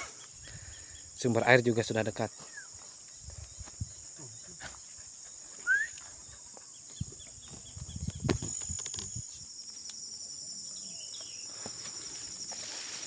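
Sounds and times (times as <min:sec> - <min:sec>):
insects trilling: 0:00.0 - 0:13.0
faint bird chirps: 0:02.2 - 0:12.4
footsteps through undergrowth: 0:11.5 - 0:13.0.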